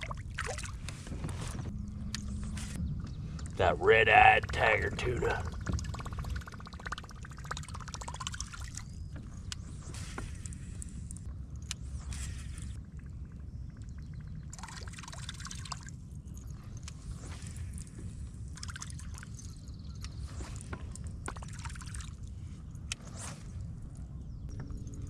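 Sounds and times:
water lapping against hull: 0.0 - 1.7.

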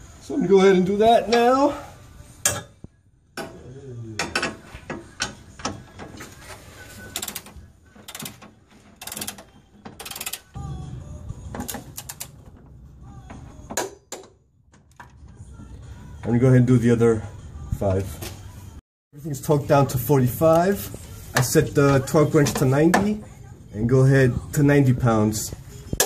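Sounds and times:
ratchet wrench clicking: 10.0 - 10.4.

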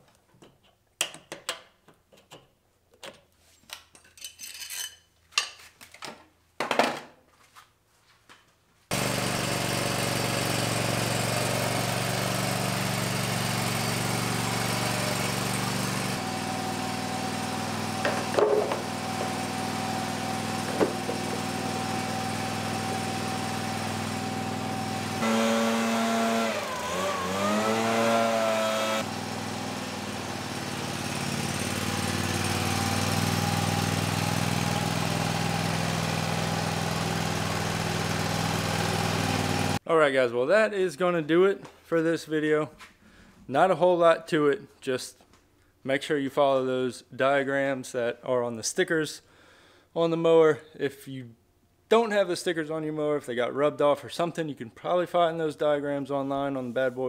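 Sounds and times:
mower engine running: 8.9 - 39.8.

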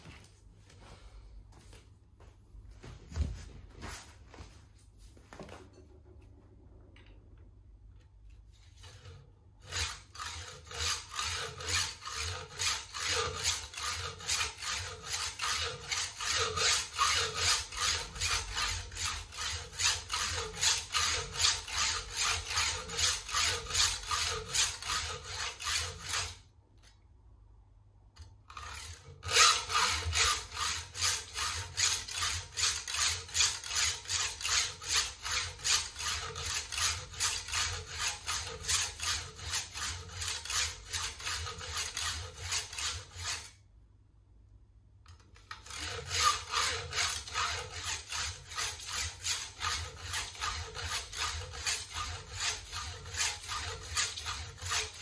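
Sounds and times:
hacksaw sawing: 8.6 - 26.5, 28.5 - 43.6, 45.4 - 55.0.

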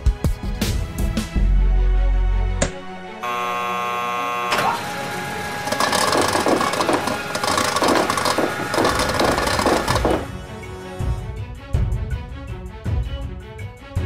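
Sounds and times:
buzzer-like tone: 3.2 - 10.2
ping-pong balls rattling down tube: 5.7 - 10.3.

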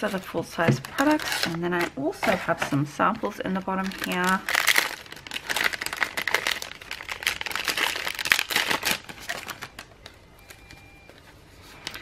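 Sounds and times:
plastic bag crinkling: 0.7 - 2.2, 3.6 - 10.2.

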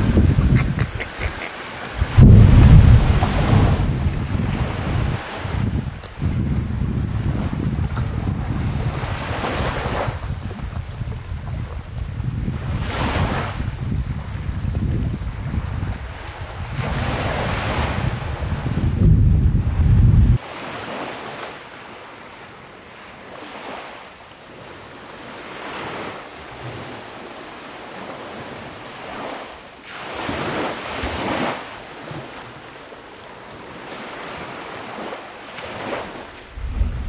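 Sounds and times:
wind on microphone: 0.0 - 20.4, 34.0 - 37.0
rushing noise in surges: 0.6 - 4.2, 36.4 - 37.0
sudden low rumble: 2.0 - 4.3, 36.4 - 37.0.

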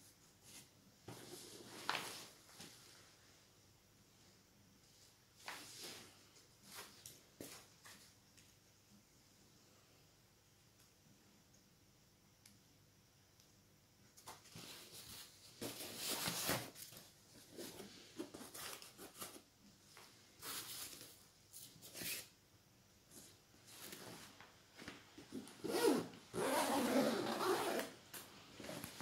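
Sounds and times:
backpack fabric rustling: 25.3 - 29.0
zipper sounds: 25.4 - 28.0.

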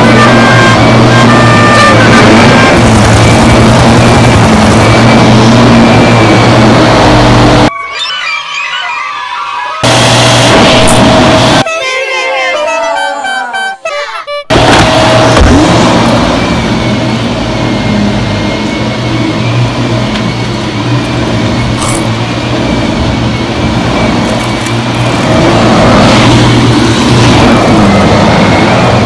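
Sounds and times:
vacuum cleaner motor drone: 2.0 - 7.7, 9.8 - 11.6.

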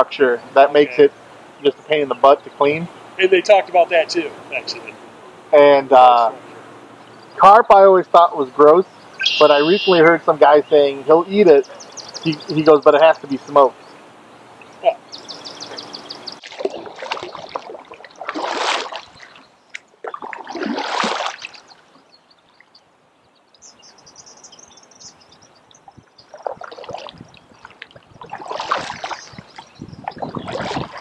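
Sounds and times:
kayak paddle splashing: 16.3 - 22.0, 26.2 - 31.0.

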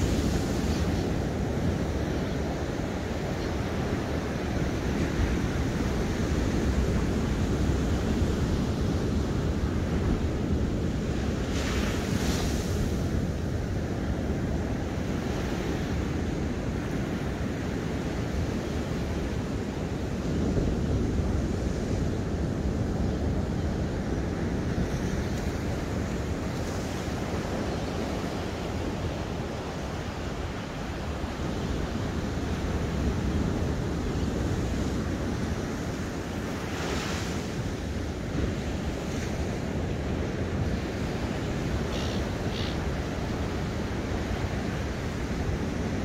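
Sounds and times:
ocean surf rumbling: 0.0 - 46.0
wind on microphone: 0.0 - 46.0.

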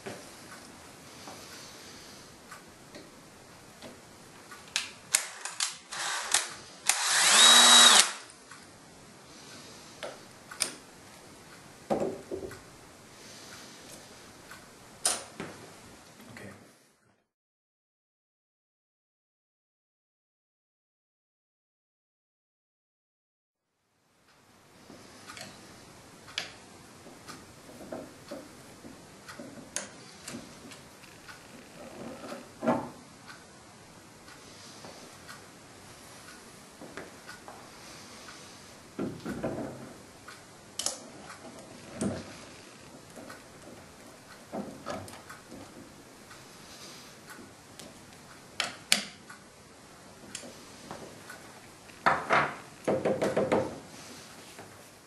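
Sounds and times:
cordless drill spinning: 5.1 - 8.3
sharp clicks and knocks: 52.0 - 53.8.

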